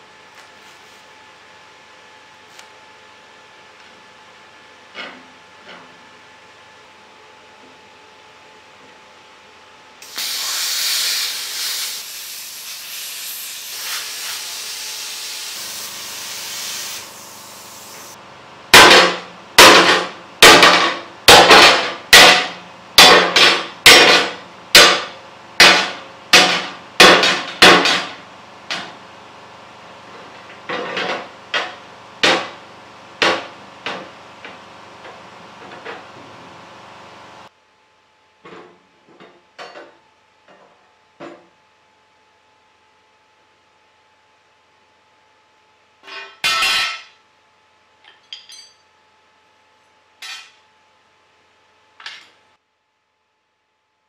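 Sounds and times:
plasma cutter hissing: 0:10.0 - 0:18.2.

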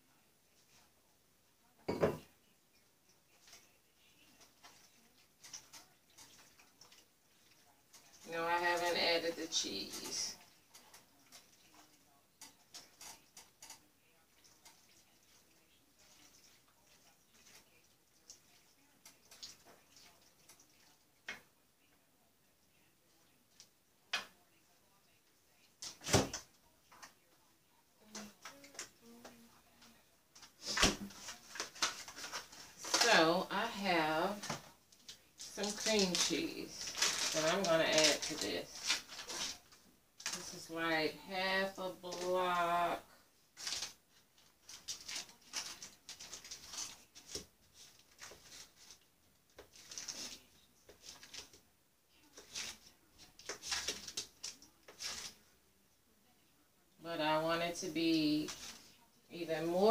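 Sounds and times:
foil wrapper crinkling: 0:30.6 - 0:33.3, 0:34.4 - 0:40.6, 0:43.6 - 0:49.0, 0:49.6 - 0:51.6, 0:52.4 - 0:55.4.

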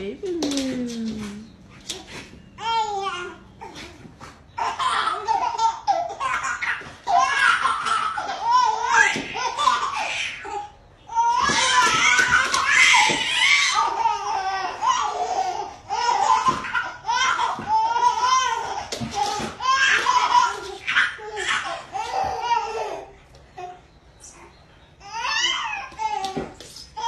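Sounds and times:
people talking: 0:00.0 - 0:01.6
baby laughing: 0:04.6 - 0:10.7.

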